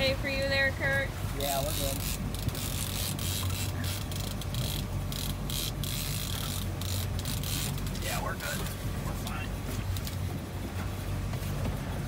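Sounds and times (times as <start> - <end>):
boat engine humming: 0.0 - 12.0
fishing reel gears whirring: 1.4 - 8.2.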